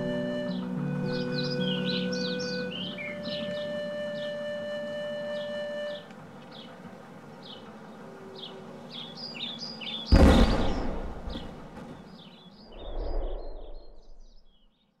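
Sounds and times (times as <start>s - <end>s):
steady music tones: 0.0s - 11.9s
birds chirping: 0.0s - 15.0s
loud explosion with deep rumble: 10.1s - 11.9s.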